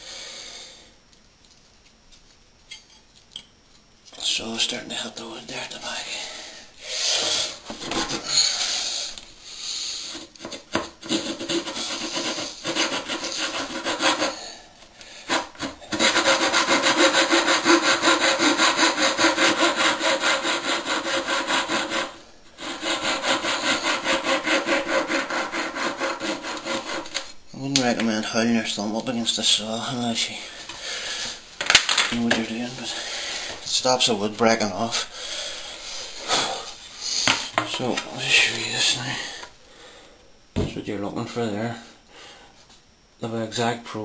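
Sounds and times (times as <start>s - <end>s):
coping saw cutting wood: 11.0s - 14.5s, 15.3s - 27.2s.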